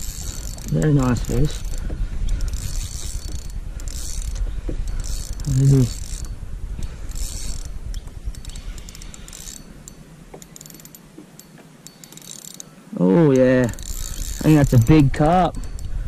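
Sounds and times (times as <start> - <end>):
low rumble: 0.0 - 9.7
fishing reel whirring and clicking: 0.0 - 16.0.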